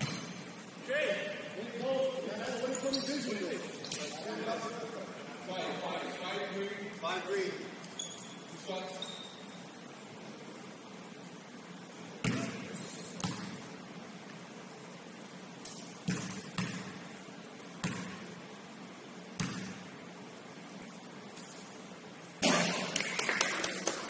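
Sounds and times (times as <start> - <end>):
basketball bouncing on gym floor: 0.0 - 0.4, 12.2 - 13.7, 16.0 - 17.1, 17.8 - 18.3, 19.4 - 19.9
low hall hum: 0.0 - 24.0.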